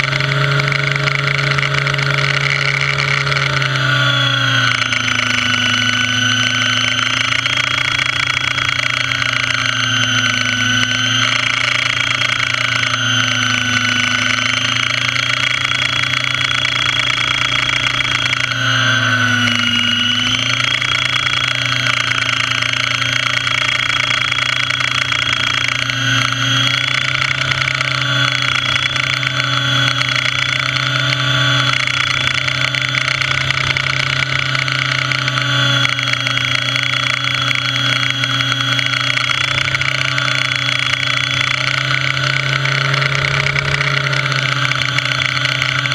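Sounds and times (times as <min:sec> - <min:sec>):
model helicopter rotor hum: 0:00.0 - 0:45.9.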